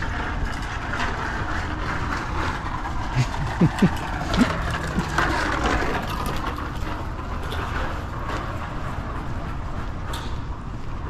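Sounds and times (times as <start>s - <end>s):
traffic hum: 0.0s - 11.0s.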